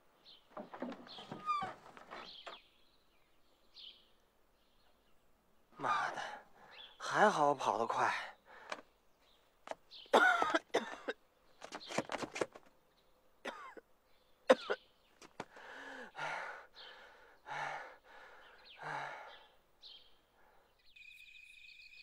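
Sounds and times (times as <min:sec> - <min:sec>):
laboured breathing: 0:08.4 - 0:08.9, 0:15.4 - 0:19.6
man coughing: 0:10.2 - 0:11.2, 0:13.5 - 0:13.8
man gasping: 0:15.5 - 0:19.5.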